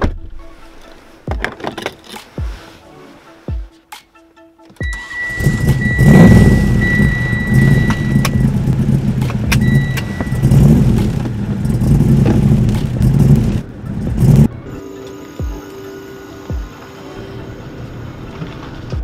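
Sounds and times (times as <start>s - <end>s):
car engine rumbling: 4.8s - 14.8s
high steady tone: 4.8s - 17.6s.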